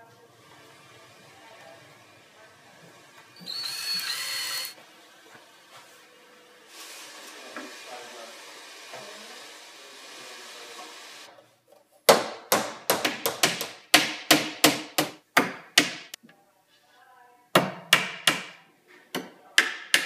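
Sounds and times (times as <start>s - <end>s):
hammer striking door frame: 12.1s - 16.2s, 17.6s - 18.6s, 19.2s - 20.0s.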